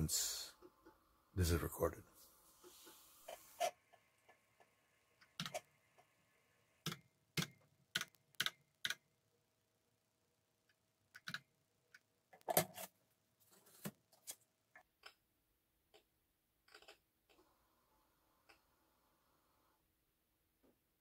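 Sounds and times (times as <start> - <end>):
faint steady hum: 17.2 - 20.8.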